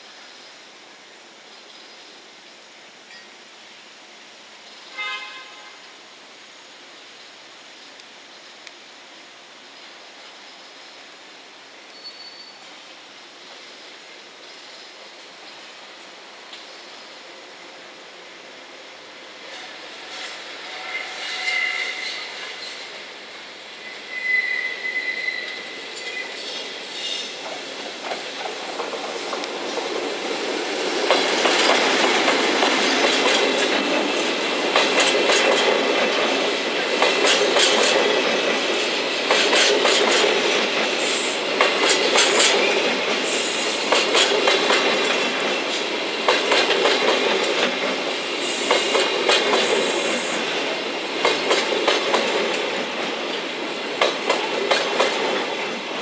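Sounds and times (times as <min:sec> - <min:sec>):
high wheel squeals: 0:20.1 - 0:22.8, 0:23.8 - 0:27.4
train wheels clicking on rail joints: 0:25.5 - 0:56.0.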